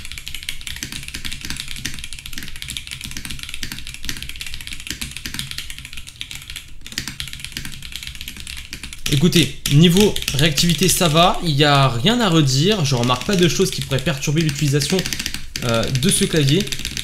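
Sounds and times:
mechanical keyboard typing: 0.0 - 17.0.

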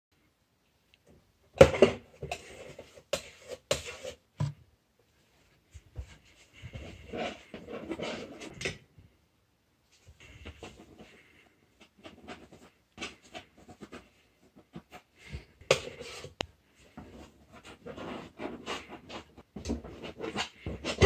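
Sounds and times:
paintbrush scratching on canvas: 17.1 - 21.0.

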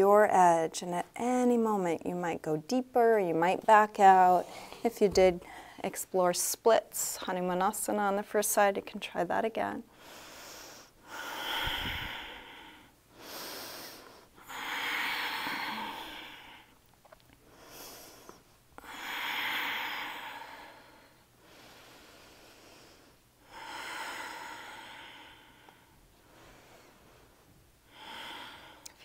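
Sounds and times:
woman breathing slowly: 4.4 - 5.8, 9.9 - 29.0.

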